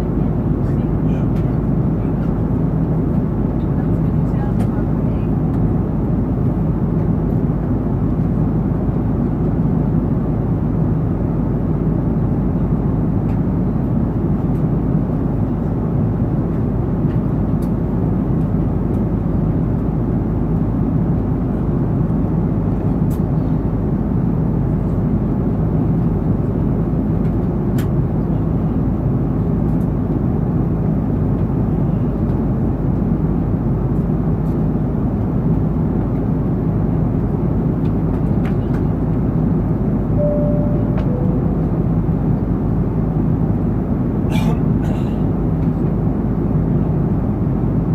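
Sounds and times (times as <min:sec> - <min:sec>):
airflow rushing in cabin: 0:00.0 - 0:47.9
jet engines droning: 0:36.5 - 0:47.9.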